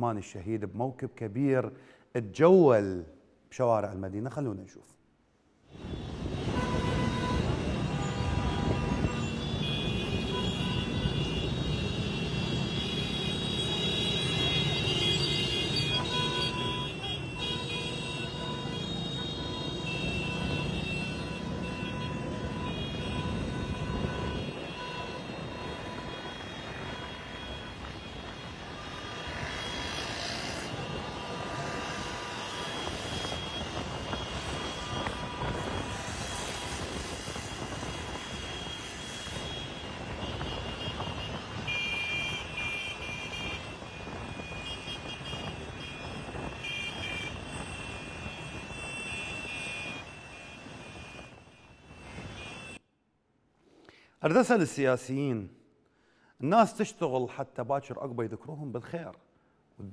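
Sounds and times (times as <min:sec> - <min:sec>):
traffic engines driving past: 0:05.6 - 0:52.8.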